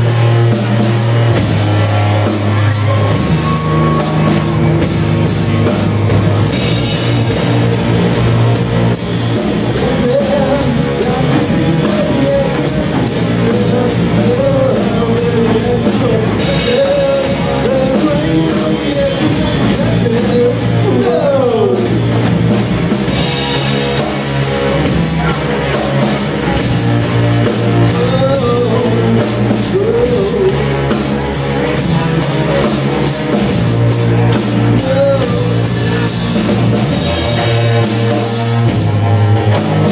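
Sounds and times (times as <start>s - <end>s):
bass guitar: 0.0s - 39.9s
drum kit: 0.0s - 39.9s
electric guitar: 0.0s - 39.9s
guitar note sliding down: 1.8s - 8.8s.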